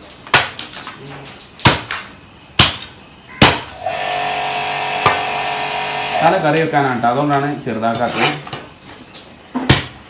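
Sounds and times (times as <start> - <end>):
steady hum: 3.7 - 6.6.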